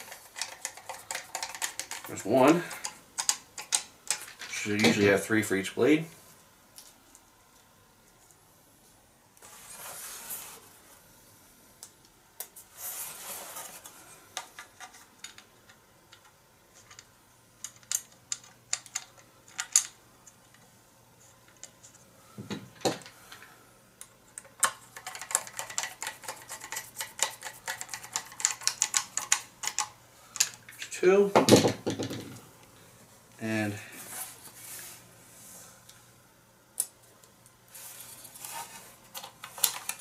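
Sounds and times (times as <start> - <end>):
small parts rustling and clicking: 0.0 - 5.2, 13.4 - 30.9, 36.7 - 40.0.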